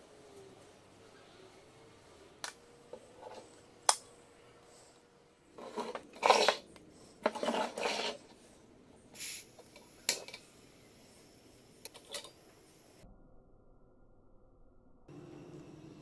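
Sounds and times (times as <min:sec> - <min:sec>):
scraping and rustling: 0:05.5 - 0:08.6.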